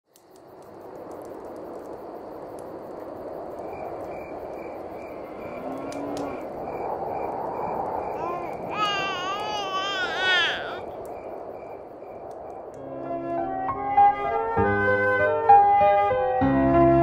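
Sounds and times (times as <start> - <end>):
steady hiss: 0.1 - 13.0
frog and insect chorus: 0.2 - 12.9.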